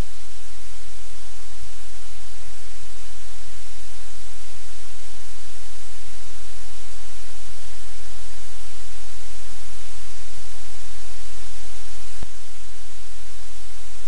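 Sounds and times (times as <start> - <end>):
static hiss: 0.0 - 14.0.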